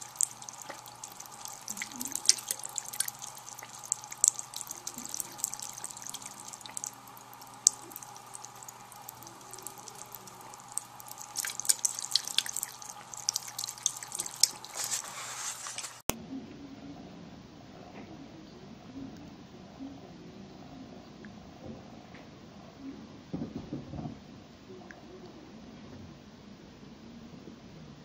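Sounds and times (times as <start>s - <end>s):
cat lapping water: 0.0s - 15.2s
water running from tap into sink: 0.0s - 16.0s
steady hum: 0.0s - 23.5s.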